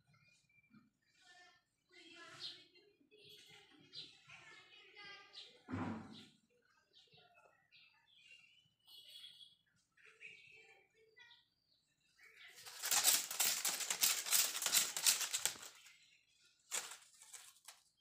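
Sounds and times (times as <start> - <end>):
dry plant stalks rustling: 12.6 - 15.9, 16.7 - 17.8.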